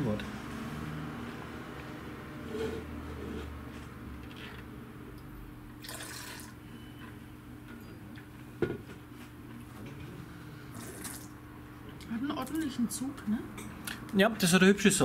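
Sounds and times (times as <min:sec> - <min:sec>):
airy slurp through lips: 0:10.7 - 0:11.3.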